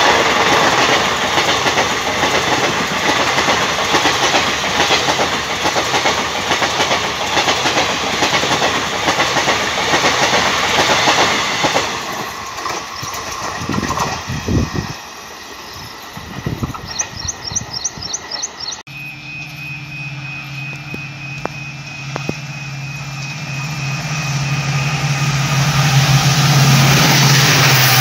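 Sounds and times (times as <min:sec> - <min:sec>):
train wheels clattering on rails: 0:00.0 - 0:18.8.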